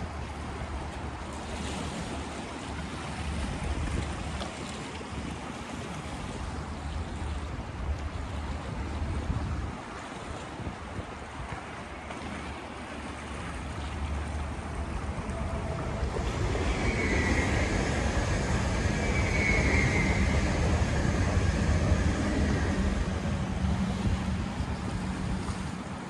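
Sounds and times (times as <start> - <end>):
electric train passing: 14.1 - 26.0
faint high whine: 14.2 - 25.6.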